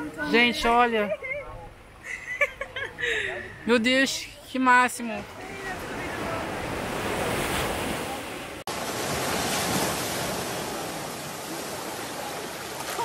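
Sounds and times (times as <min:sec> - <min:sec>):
small waves washing on sand: 0:05.2 - 0:13.0.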